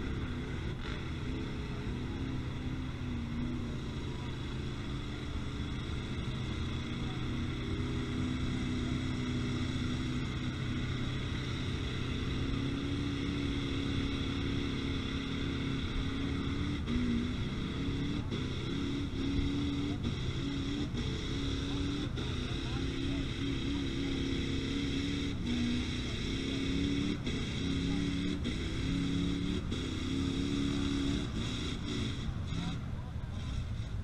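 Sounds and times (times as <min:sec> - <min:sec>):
vehicle engines revving: 0:00.0 - 0:34.0.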